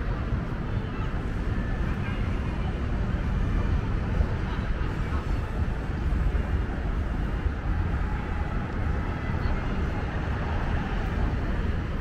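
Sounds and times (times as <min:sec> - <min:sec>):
street noise rumble: 0:00.0 - 0:12.0.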